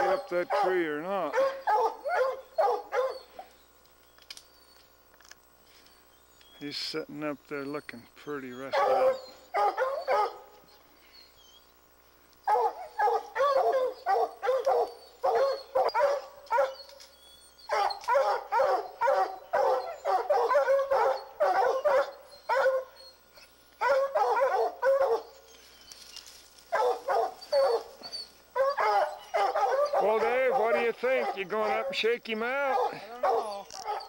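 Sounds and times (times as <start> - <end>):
hounds barking: 0.0 - 3.6, 8.6 - 10.8, 12.4 - 25.7, 26.6 - 34.0.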